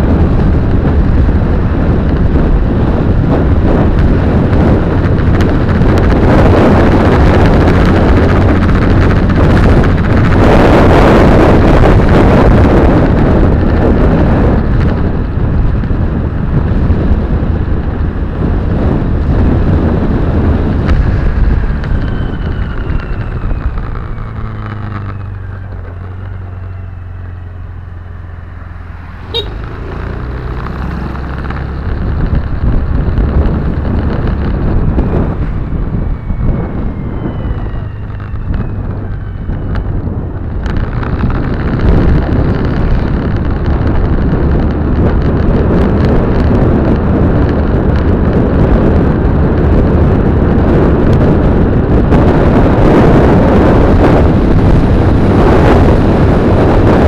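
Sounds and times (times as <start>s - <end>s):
car engine hum: 0.0s - 57.0s
road and wind noise: 0.0s - 57.0s.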